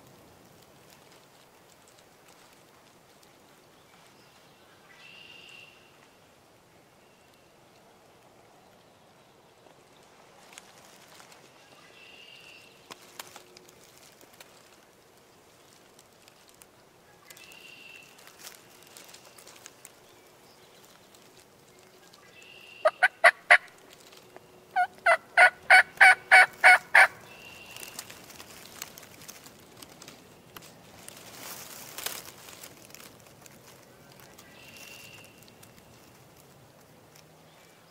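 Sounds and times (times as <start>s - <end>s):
turkey yelping: 22.8s - 23.7s, 24.8s - 27.2s.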